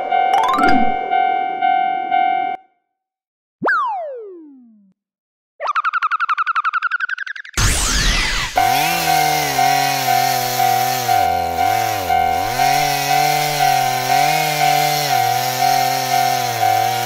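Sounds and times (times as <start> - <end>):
level crossing warning bell: 0.0 - 2.6, 9.1 - 17.0
chainsaw buzzing: 7.6 - 17.0.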